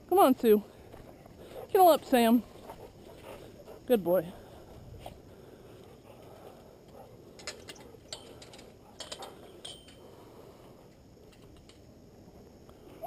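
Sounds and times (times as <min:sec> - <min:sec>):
metal gate latch clinking: 0:07.4 - 0:10.0.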